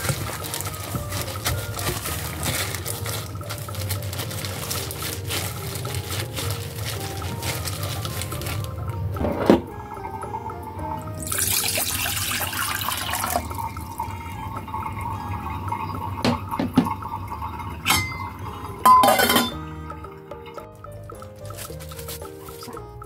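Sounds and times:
faint background music: 0.0 - 23.0
water pouring into saucepan: 0.0 - 23.0
metal lid clattering on pot: 17.9 - 19.6.

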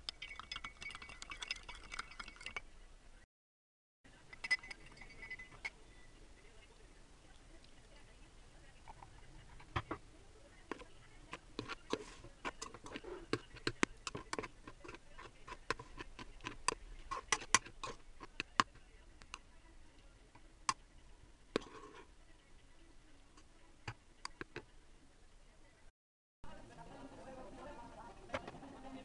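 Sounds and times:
spoon scraping a pot: 4.3 - 6.1, 10.6 - 19.4, 21.5 - 22.2.

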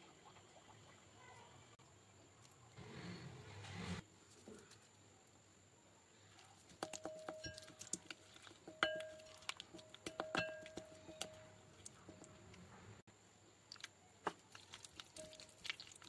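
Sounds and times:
glass bowl ringing: 8.7 - 9.4, 10.2 - 11.6.

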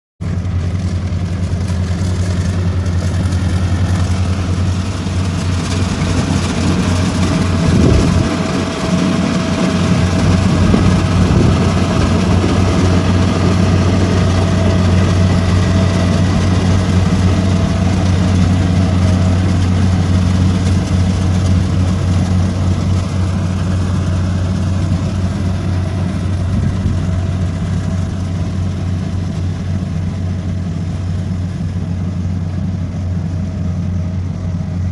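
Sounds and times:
combine harvester engine drone: 0.2 - 34.9.

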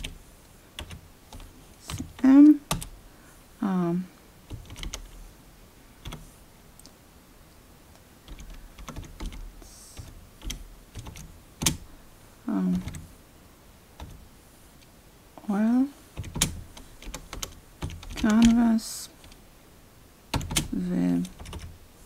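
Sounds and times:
keyboard typing: 0.8 - 2.9, 4.5 - 5.2, 6.0 - 6.2, 8.3 - 11.9, 12.7 - 13.1, 14.0 - 14.2, 16.2 - 18.6, 20.3 - 21.8.

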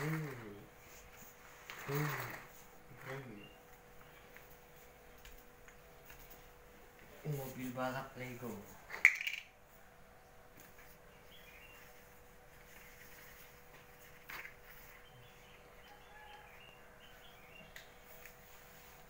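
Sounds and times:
faint steady hum: 0.0 - 19.0
faint high bird chirps: 11.1 - 12.0.

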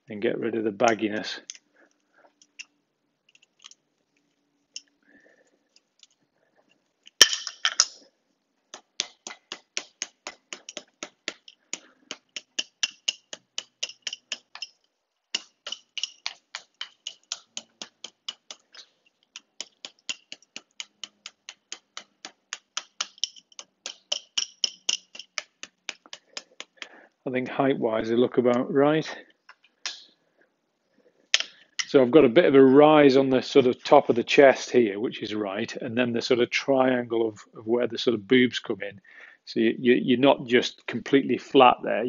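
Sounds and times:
hammer tapping wire: 8.7 - 27.0
metallic clatter: 23.0 - 25.5.

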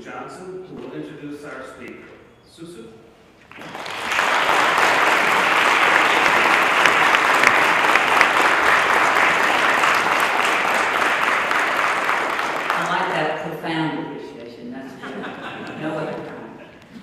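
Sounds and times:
audience applauding: 3.5 - 13.4.

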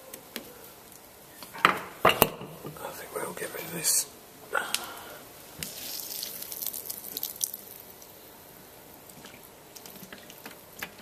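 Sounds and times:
oil trickling into container: 5.8 - 8.2.

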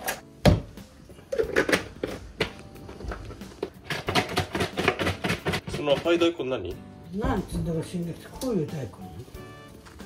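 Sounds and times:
kitchen items clicking and knocking: 0.0 - 6.6
light background music: 0.0 - 10.0.

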